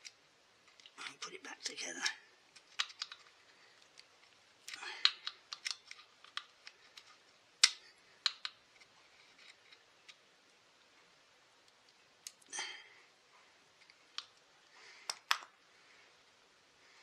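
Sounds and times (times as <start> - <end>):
pliers clicking and scraping on wire: 3.9 - 8.6.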